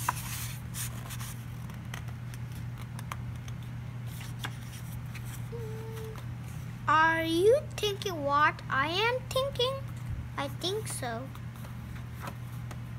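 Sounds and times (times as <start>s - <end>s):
paper pages rustling: 0.0s - 6.2s
low electrical hum: 0.0s - 12.9s.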